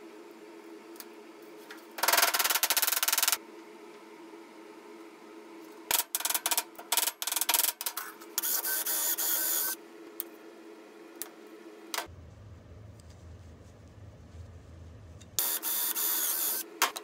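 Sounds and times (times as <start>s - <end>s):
cordless drill whine: 8.4s - 9.8s, 15.4s - 16.6s.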